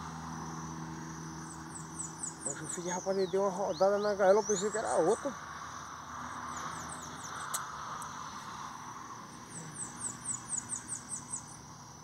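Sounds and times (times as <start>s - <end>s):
songbird singing high notes: 1.8s - 5.4s.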